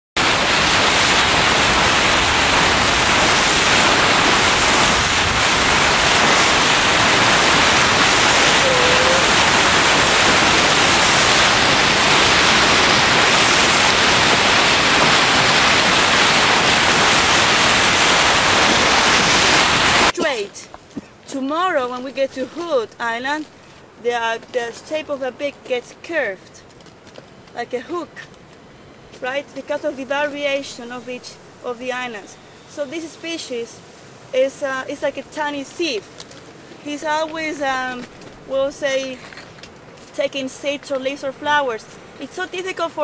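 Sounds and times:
water rushing from boat bow wave: 0.2s - 20.2s.

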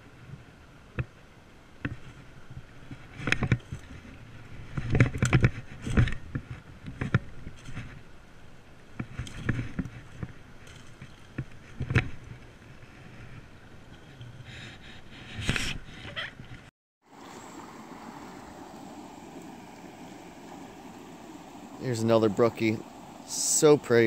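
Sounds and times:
low background hiss: 17.1s - 24.0s.

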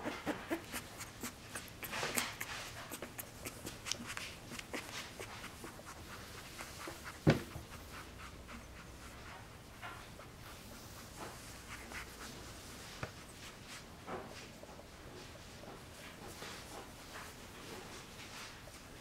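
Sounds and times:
scratching on a fleece blanket: 0.0s - 14.5s.

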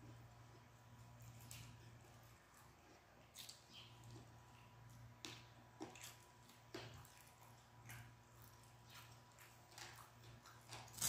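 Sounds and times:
low room hum: 0.0s - 11.0s
chewing clicks and smacks: 1.4s - 11.0s.

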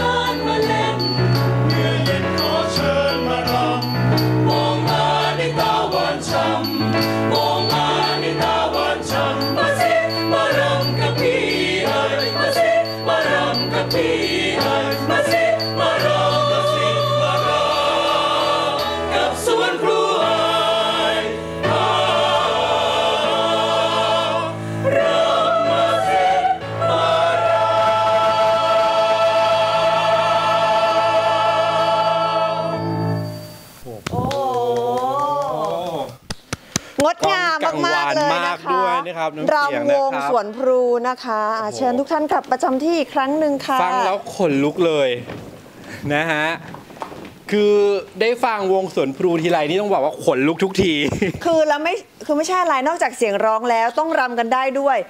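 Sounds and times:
mixed choir singing in harmony: 0.0s - 33.8s.

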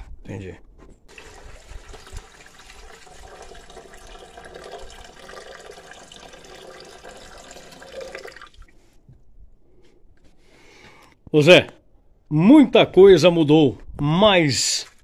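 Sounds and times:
water pouring into a pot: 1.1s - 8.8s.

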